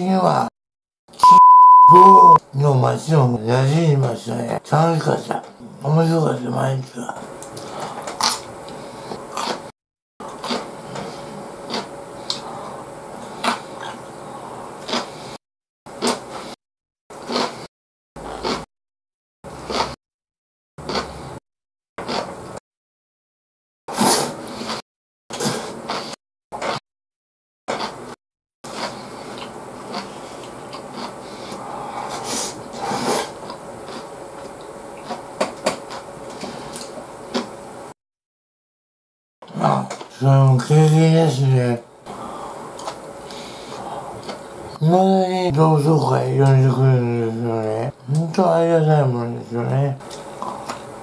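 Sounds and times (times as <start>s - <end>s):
person chewing: 7.4s - 15.4s, 16.0s - 16.6s, 17.2s - 18.7s, 19.5s - 20.0s, 20.8s - 21.4s, 22.0s - 22.3s, 24.2s - 26.8s, 27.7s - 28.0s, 28.7s - 37.5s, 42.1s - 44.6s, 50.0s - 50.9s.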